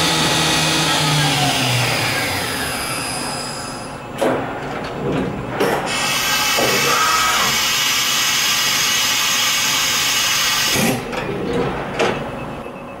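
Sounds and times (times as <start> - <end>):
high machine whine: 0.0 - 13.0
machine knocks: 4.2 - 5.9
machine milling metal with hiss: 5.8 - 11.0.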